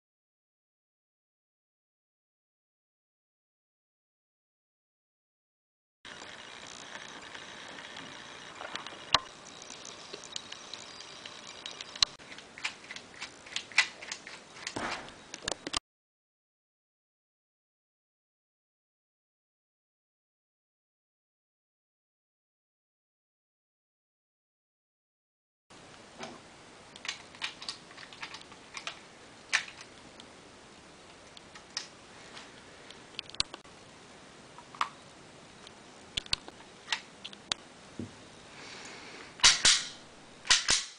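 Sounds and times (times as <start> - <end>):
toy pistol plastic clicks: 10.4 - 14.8, 39.4 - 40.9
plastic toy gun clicking: 39.4 - 40.9.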